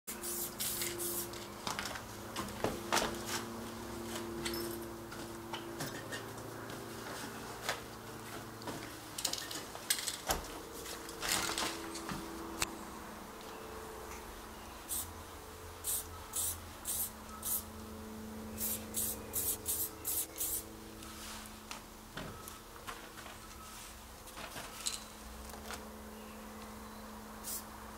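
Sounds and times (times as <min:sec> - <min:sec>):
spray can hissing bursts: 0:00.1 - 0:01.4, 0:14.9 - 0:15.1, 0:15.8 - 0:17.7, 0:18.6 - 0:20.6, 0:27.4 - 0:27.6
steady low hum: 0:00.1 - 0:27.9.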